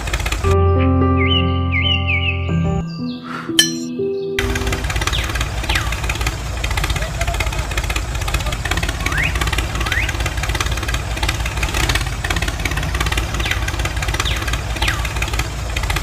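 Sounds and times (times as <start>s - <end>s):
tractor engine idling: 4.4s - 16.0s.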